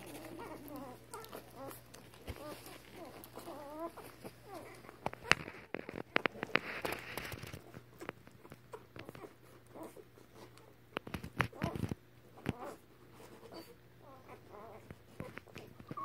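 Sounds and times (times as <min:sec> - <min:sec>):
puppy whimpering squeak: 0:00.0 - 0:05.0, 0:12.4 - 0:16.0
rustling on bedding: 0:00.0 - 0:12.0
puppies suckling clicks: 0:00.0 - 0:16.0.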